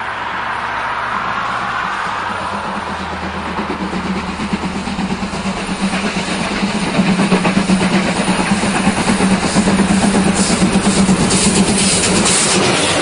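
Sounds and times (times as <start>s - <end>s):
train rumbling and clattering: 0.0s - 13.0s
high hiss: 4.9s - 13.0s.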